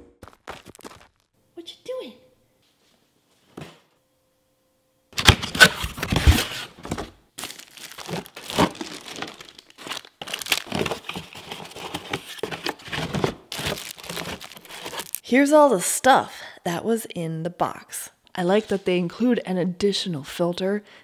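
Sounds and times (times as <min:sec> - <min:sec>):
plastic bags crinkling: 0:05.2 - 0:15.2
pulp packing tray rustling: 0:05.2 - 0:15.2.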